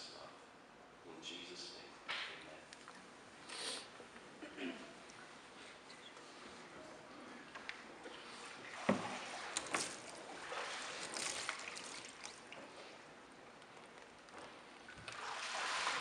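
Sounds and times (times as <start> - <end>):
water sloshing and dripping: 7.4 - 16.0.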